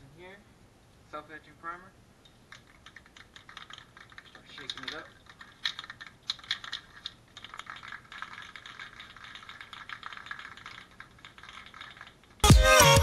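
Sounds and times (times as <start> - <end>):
aerosol can ball rattling: 2.3 - 12.5.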